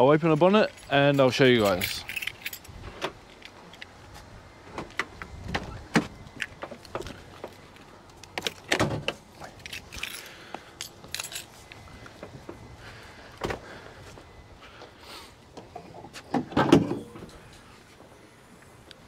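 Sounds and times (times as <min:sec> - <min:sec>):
keys jingling: 0:00.5 - 0:03.9, 0:09.4 - 0:11.9.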